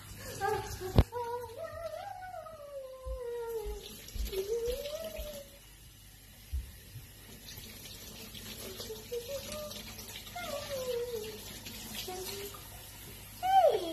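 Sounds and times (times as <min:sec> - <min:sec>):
child humming: 0:00.4 - 0:05.5, 0:13.4 - 0:13.9.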